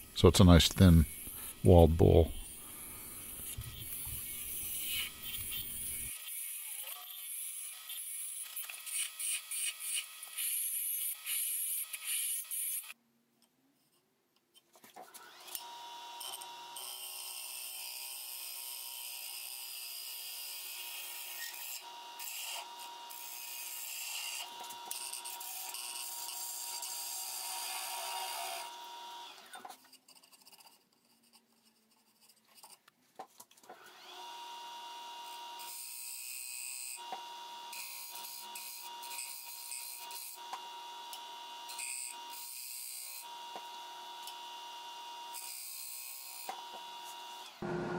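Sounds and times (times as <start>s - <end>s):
lathe whine: 46.5s - 47.9s.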